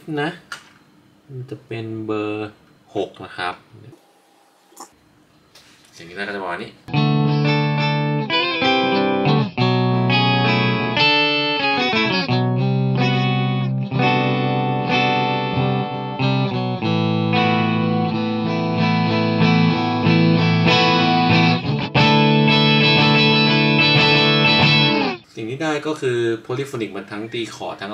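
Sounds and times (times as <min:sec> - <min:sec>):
clean electric guitar with harmony: 0:06.9 - 0:25.2.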